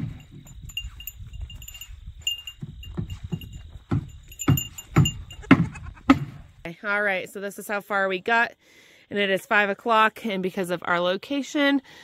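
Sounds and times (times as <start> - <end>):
small bell tinkling: 0.2 - 5.5.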